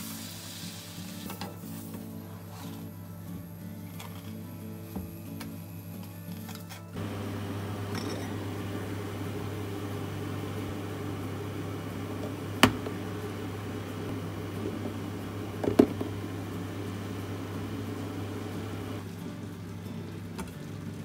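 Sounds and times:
microwave oven humming: 7.0 - 21.0.

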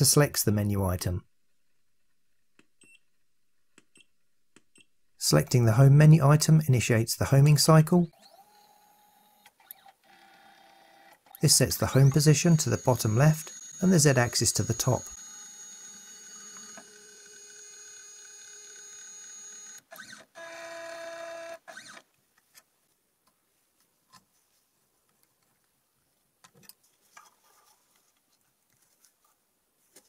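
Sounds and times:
stepper motors whining: 11.4 - 19.8.

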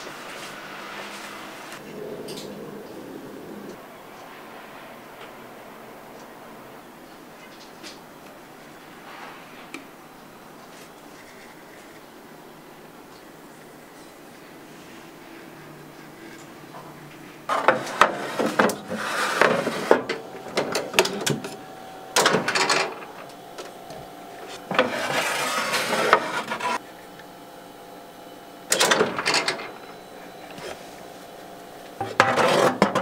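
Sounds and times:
faint steady hum: 0.0 - 33.0
metal baking tray scraping: 17.5 - 21.6, 24.5 - 26.8, 32.0 - 33.0.

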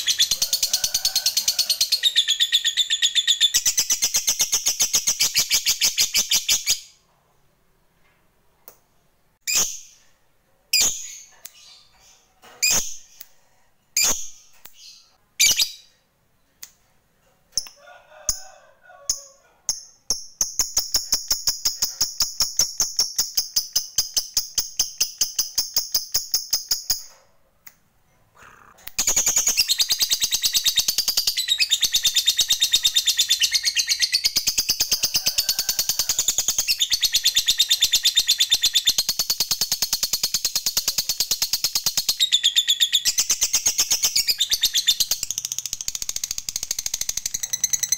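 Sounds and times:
lovebird chirps: 0.0 - 6.9, 14.0 - 16.6, 36.1 - 47.9.

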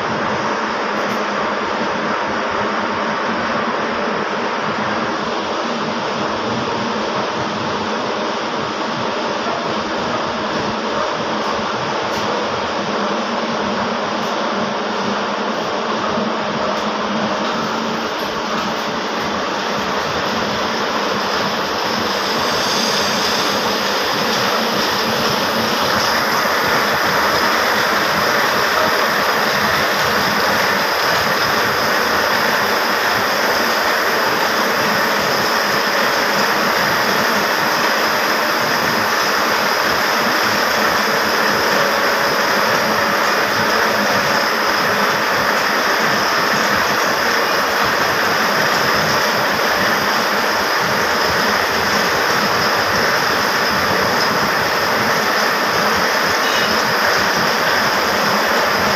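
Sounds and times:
textile machinery clattering: 16.7 - 58.9.

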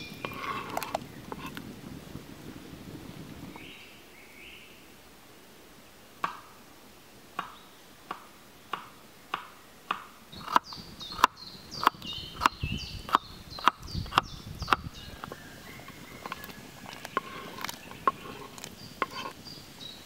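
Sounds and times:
knife chopping on wooden board: 16.3 - 19.3.

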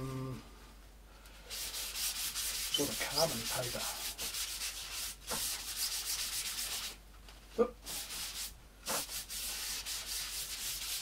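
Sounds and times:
paper towel scrubbing photo paper: 1.5 - 7.0, 7.9 - 11.0.

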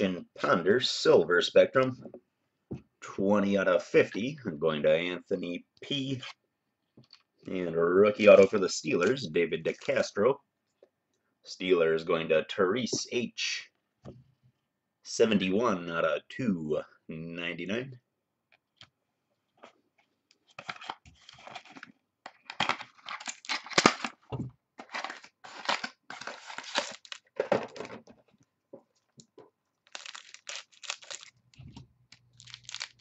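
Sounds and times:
wrappers tearing and crinkling: 22.5 - 24.2, 24.8 - 27.5, 29.8 - 33.0.

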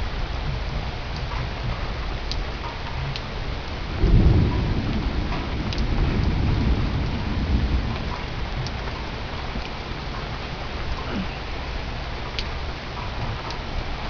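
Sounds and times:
thunder rumbling: 0.0 - 12.2
rain falling: 0.0 - 14.0.

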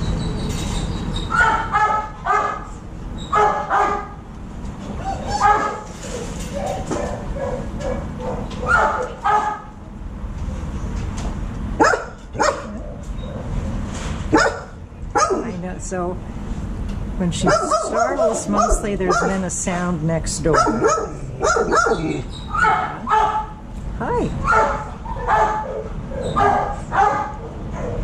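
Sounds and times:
dog barking: 1.3 - 2.7, 3.3 - 4.2, 5.3 - 5.9, 6.6 - 9.7, 11.8 - 12.8, 14.3 - 15.5, 17.4 - 19.4, 20.5 - 23.6, 24.4 - 28.0.

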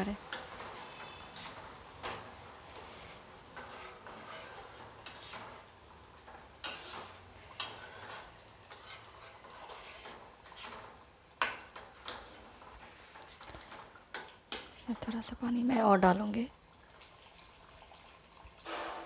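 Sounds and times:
spatula scraping a pan: 0.3 - 14.9.

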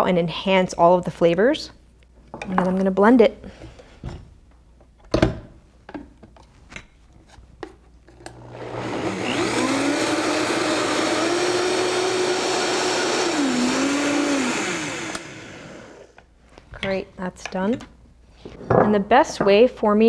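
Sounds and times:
blender motor running: 8.3 - 16.2.

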